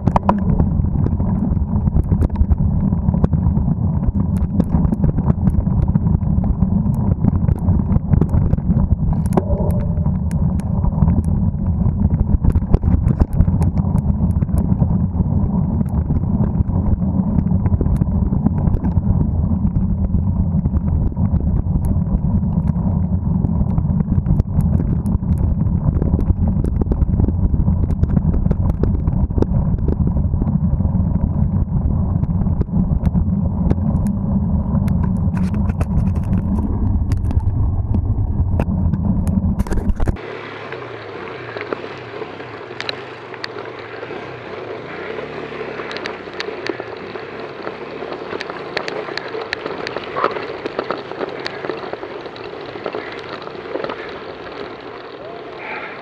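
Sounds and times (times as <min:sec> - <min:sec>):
wind buffeting microphone: 0:00.0 - 0:56.0
tyres rolling over gravel: 0:34.6 - 0:56.0
bike clicks and scrapes: 0:34.7 - 0:38.0, 0:38.6 - 0:40.2, 0:41.5 - 0:55.2.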